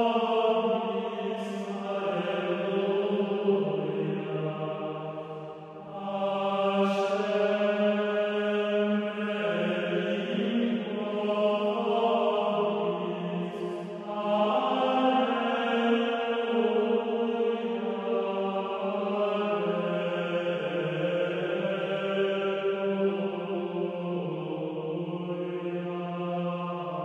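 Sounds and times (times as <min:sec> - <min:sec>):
slow vocal chanting: 0:00.0 - 0:27.0.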